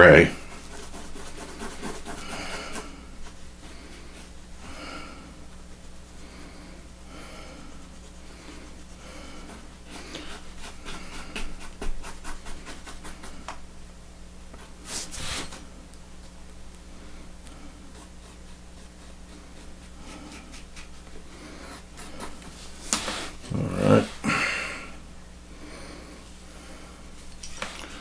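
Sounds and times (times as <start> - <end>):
heavy breathing: 2.1 - 5.4, 6.1 - 11.6, 21.2 - 27.1.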